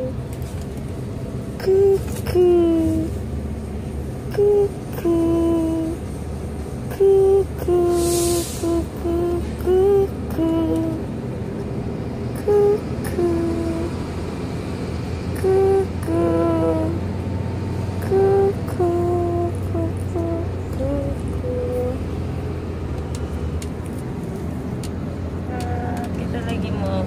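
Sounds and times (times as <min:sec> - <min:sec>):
car road rumble: 0:00.0 - 0:27.0
person humming a tune: 0:01.6 - 0:03.2, 0:04.3 - 0:06.0, 0:06.9 - 0:11.1, 0:12.4 - 0:14.0, 0:15.4 - 0:17.0, 0:18.0 - 0:22.1
brief hiss: 0:08.0 - 0:08.7.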